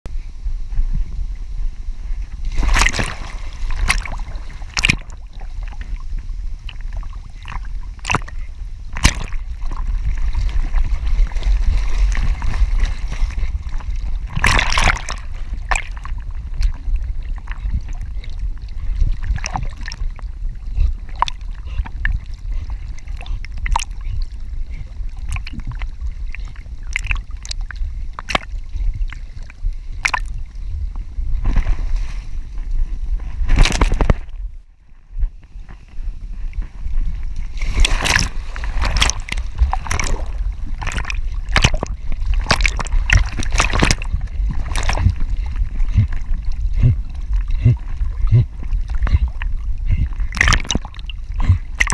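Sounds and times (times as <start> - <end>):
steady low rumble: 0.0 - 51.9
water sloshing around swimming dog: 6.7 - 30.4, 37.6 - 51.9.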